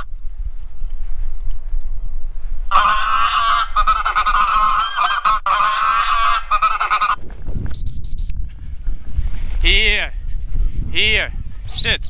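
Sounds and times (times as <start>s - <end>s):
electronic goose caller honking: 2.7s - 7.2s.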